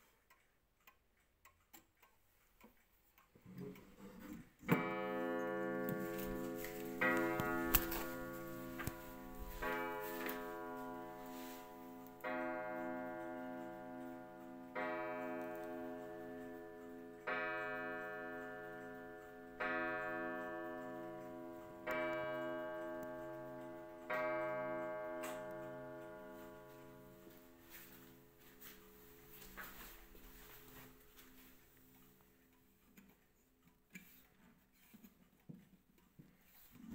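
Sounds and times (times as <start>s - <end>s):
clock ticking: 0.0s - 36.9s
clock striking on a gong: 4.7s - 29.7s.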